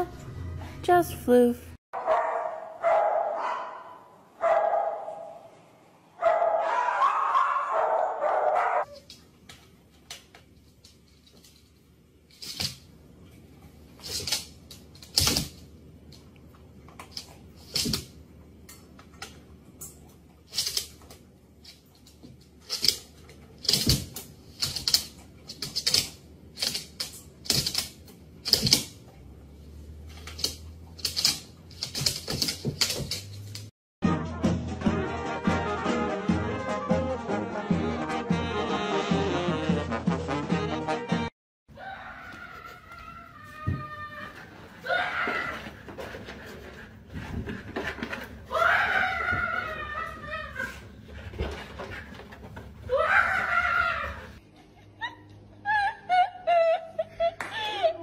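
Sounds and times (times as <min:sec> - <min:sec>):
dog barking: 0:02.0 - 0:05.5, 0:06.2 - 0:09.0
dog paws tapping on wooden floor: 0:30.1 - 0:33.7, 0:42.3 - 0:53.0.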